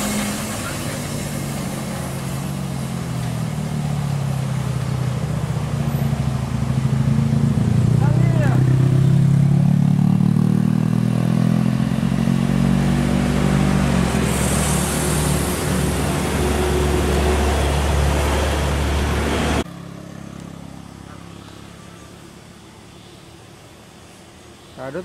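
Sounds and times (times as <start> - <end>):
truck rumbling past: 0.0 - 24.5
vehicle engine drone: 0.0 - 25.0.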